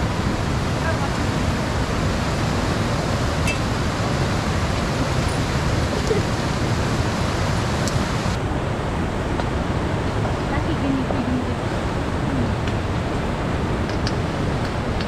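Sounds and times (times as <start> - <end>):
fast-flowing river rushing: 0.0 - 15.0.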